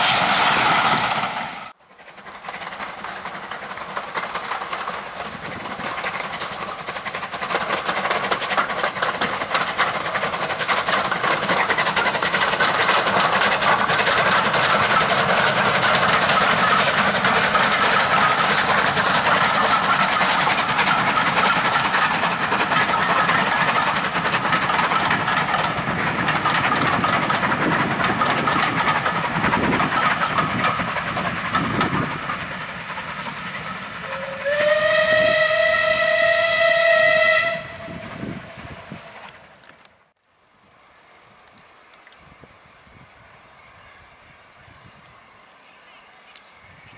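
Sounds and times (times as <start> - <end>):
wheels clattering over rail joints: 0.0 - 34.3
steam locomotive exhaust and hiss: 0.0 - 46.9.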